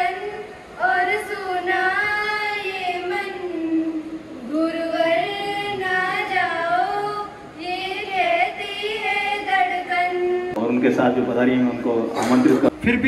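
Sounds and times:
high voice singing slowly: 2.7 - 10.6.

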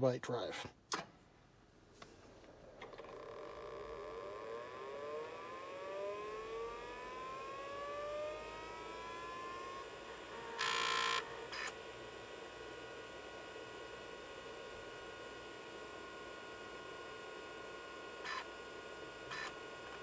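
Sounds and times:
spindle motor whine rising: 2.6 - 12.6.

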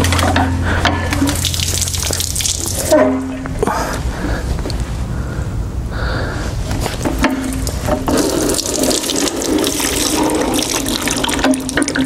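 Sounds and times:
oil splashing into drain pan: 0.0 - 3.4, 7.2 - 12.0.

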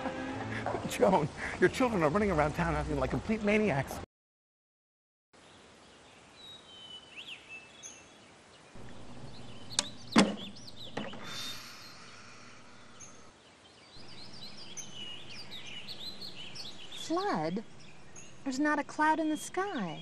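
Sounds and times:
birds chirping: 5.7 - 20.0.

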